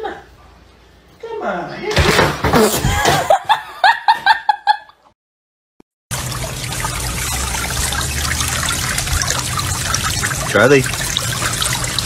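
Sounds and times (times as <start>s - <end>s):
trickle of running water: 6.1s - 12.0s.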